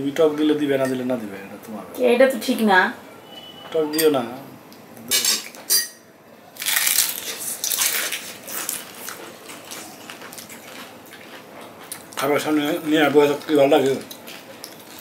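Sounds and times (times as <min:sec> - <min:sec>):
spoons clinking on bowls: 0:05.1 - 0:06.0
crunching of fried snacks: 0:06.6 - 0:12.2.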